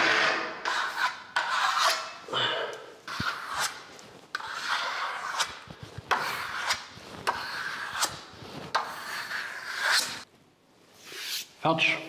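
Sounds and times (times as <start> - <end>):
trowel scraping plaster: 0.0 - 2.3, 3.0 - 10.3.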